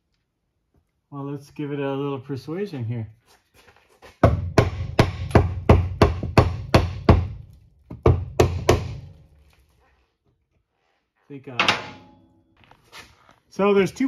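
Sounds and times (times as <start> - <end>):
hammer striking metal with ring: 11.6 - 12.4.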